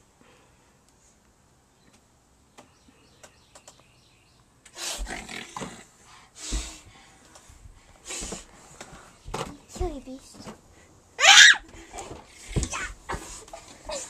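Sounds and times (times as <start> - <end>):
child roaring: 11.2 - 11.6.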